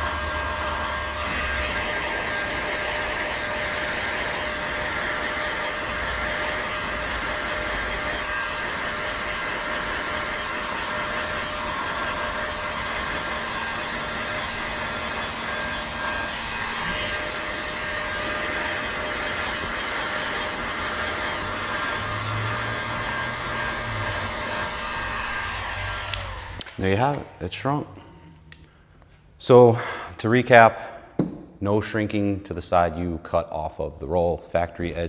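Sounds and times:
heat gun blowing air: 0.0 - 27.3
fan motor hum: 0.0 - 28.8.

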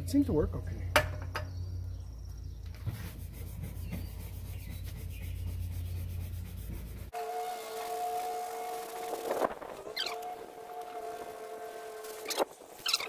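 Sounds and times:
scrub brush scrubbing boat hull: 2.8 - 13.0.

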